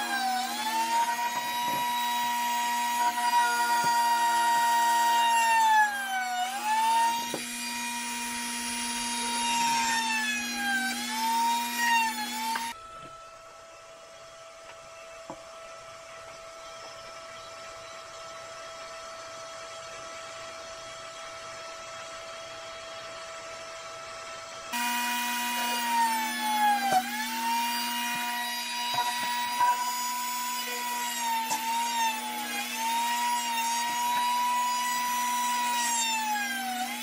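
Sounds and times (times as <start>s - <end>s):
rotary tool grinding wood: 0.0s - 12.8s, 24.7s - 37.0s.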